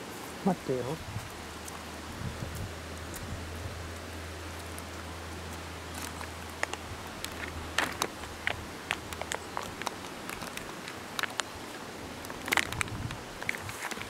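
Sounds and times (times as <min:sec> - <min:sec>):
plastic bag crinkling: 0:05.9 - 0:11.5, 0:12.3 - 0:14.0.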